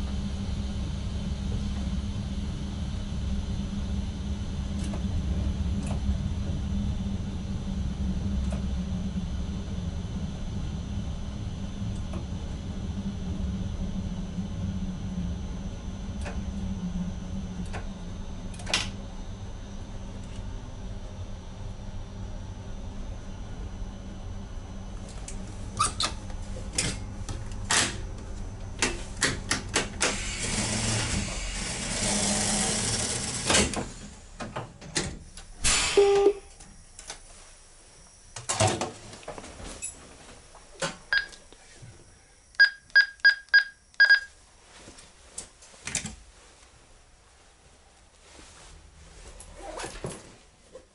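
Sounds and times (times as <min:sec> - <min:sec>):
high beeps: 0:41.1 - 0:41.4, 0:42.6 - 0:44.3.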